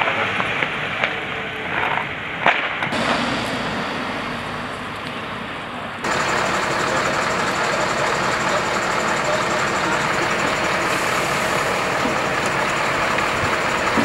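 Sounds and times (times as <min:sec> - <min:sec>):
fire truck engine hum: 0:00.0 - 0:14.0
steady high whine: 0:02.9 - 0:14.0.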